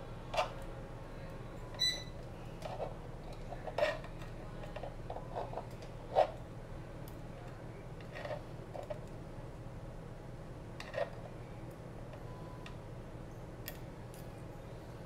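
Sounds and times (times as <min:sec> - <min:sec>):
low steady hum: 0:00.0 - 0:15.0
short electronic beep: 0:01.8 - 0:02.1.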